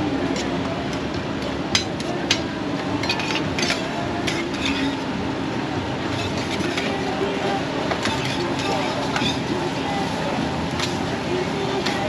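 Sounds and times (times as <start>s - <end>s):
crowd noise: 0.0s - 12.0s
metal spatula on steel griddle: 1.7s - 5.1s, 6.0s - 11.1s.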